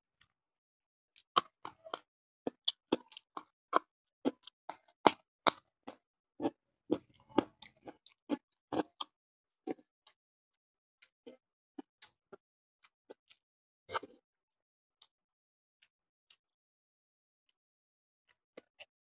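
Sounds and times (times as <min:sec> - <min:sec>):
wet chewing: 0:01.4 - 0:09.1.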